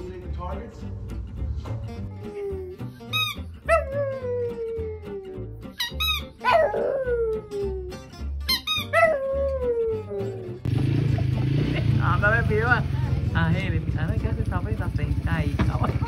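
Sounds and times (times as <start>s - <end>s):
background music with low beat: 0.0s - 16.0s
squeaky toy ball squeaking: 2.8s - 3.8s, 5.6s - 6.6s, 8.4s - 9.1s
small dog howling: 3.7s - 5.5s, 6.4s - 8.1s, 8.8s - 10.6s.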